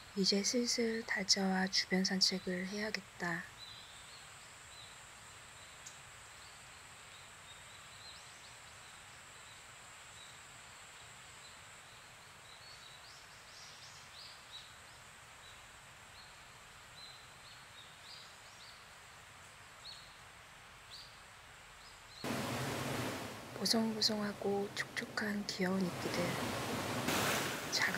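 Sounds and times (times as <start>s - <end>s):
even hiss: 22.2s - 27.9s
water trickling and dripping: 22.2s - 27.9s.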